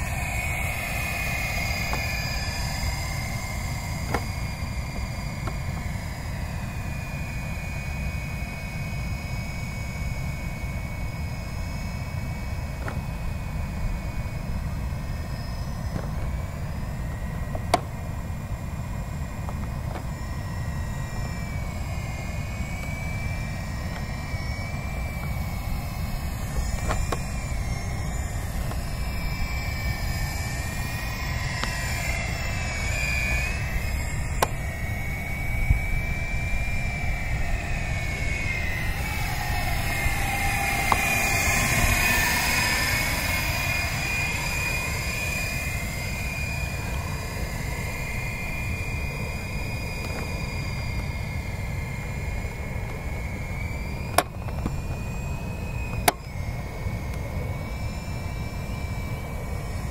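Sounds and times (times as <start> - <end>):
toy helicopter whine: 0.0 - 59.9
wind on microphone: 0.0 - 59.9.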